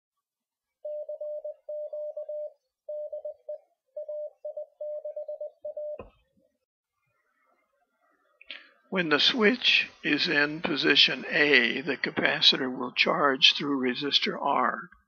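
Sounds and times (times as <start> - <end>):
morse code sidetone: 0.8 - 6.1.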